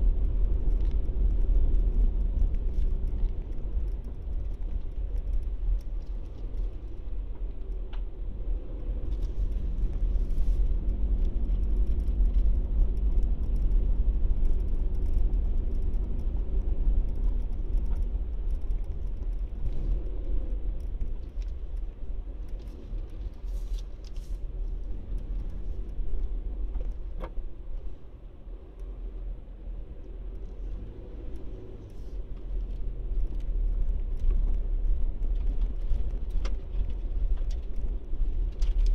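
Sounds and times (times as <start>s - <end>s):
car engine and road rumble: 0.0s - 38.9s
faint clicks and rattles: 0.1s - 8.1s, 9.0s - 28.0s, 30.0s - 38.9s.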